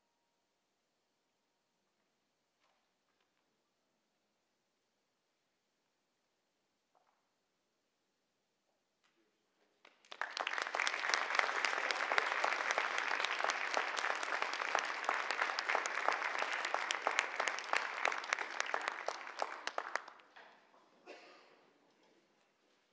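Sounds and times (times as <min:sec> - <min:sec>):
audience applauding: 0:09.9 - 0:20.3.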